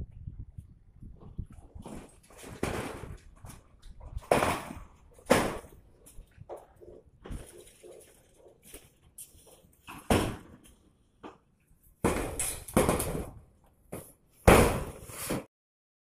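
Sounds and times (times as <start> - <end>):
metal roofing sheets banging: 1.7 - 10.7, 12.0 - 13.4, 14.0 - 15.5.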